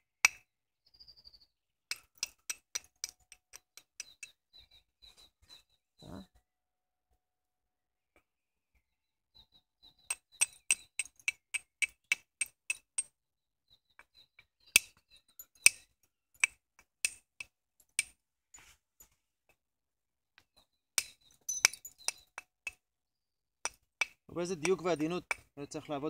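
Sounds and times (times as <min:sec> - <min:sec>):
hammer knapping flint: 0:01.9 - 0:04.3, 0:10.1 - 0:13.1, 0:14.8 - 0:15.0, 0:16.4 - 0:18.2, 0:20.4 - 0:22.8, 0:23.6 - 0:25.6.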